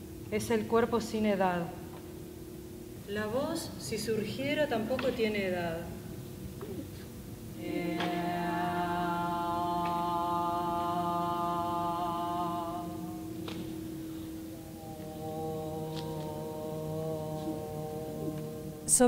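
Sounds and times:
person singing long note: 7.6 - 19.0.

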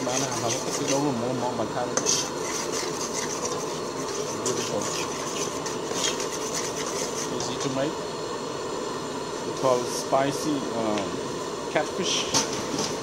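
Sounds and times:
metal ladle scraping pot: 0.0 - 7.7
steady hiss: 0.0 - 13.0.

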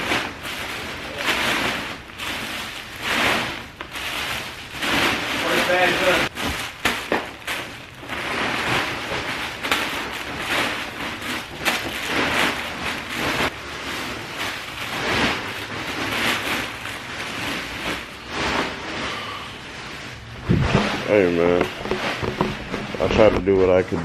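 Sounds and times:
plastic rustling and crinkling: 0.0 - 24.0.

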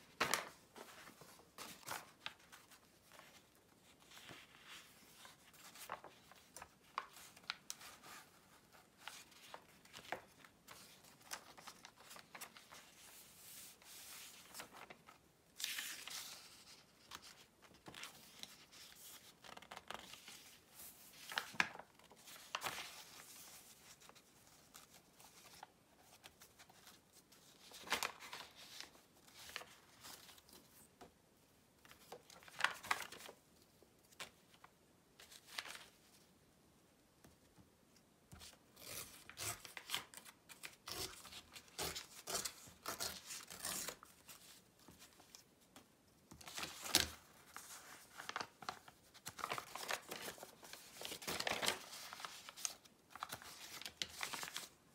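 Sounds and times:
pages turning and rustling: 0.0 - 31.2, 31.8 - 36.2, 38.3 - 54.8
paper tearing: 38.8 - 44.0.

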